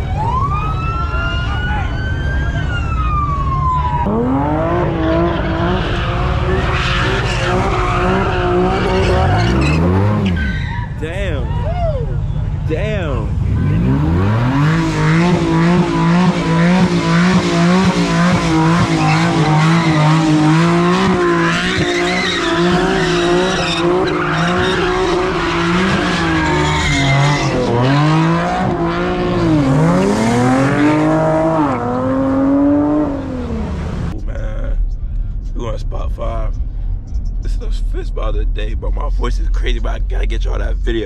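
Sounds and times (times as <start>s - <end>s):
car engine revving high: 3.1s - 11.6s, 12.5s - 34.7s
tyres squealing: 4.9s - 11.8s, 18.5s - 28.0s.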